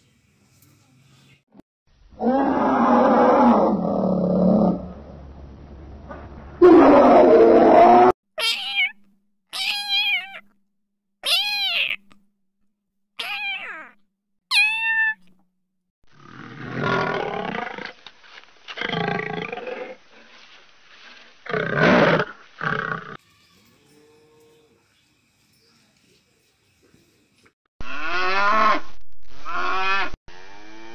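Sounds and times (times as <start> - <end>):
loud growl: 2.1 - 5.2, 6.6 - 8.2, 16.1 - 17.9
lion roaring: 2.2 - 5.2, 6.6 - 8.1, 16.2 - 17.9, 18.8 - 20.0.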